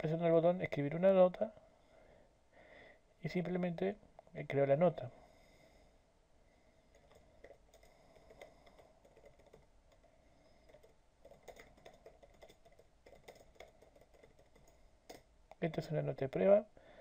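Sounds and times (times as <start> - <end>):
faint keyboard typing: 6.9 - 16.6.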